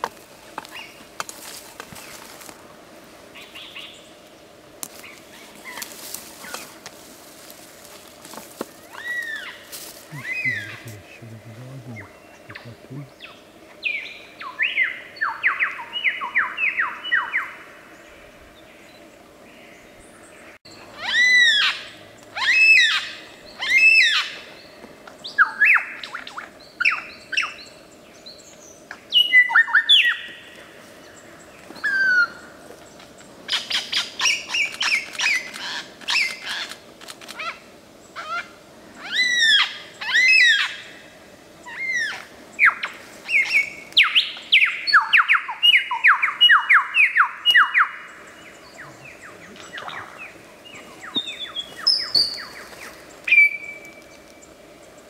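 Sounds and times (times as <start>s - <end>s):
lyrebird singing mimicked calls: 9.0s - 12.8s.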